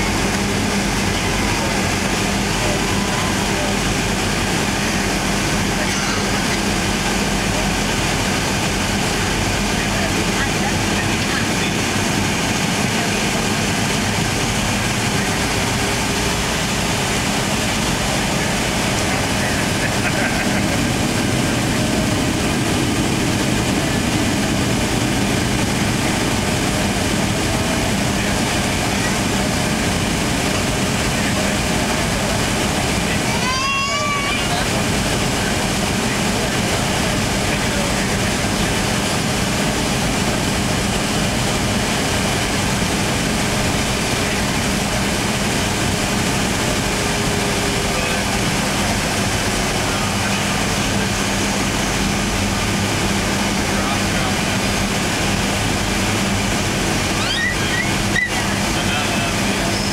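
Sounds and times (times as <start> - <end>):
jet engines from cabin: 0.0 - 59.9.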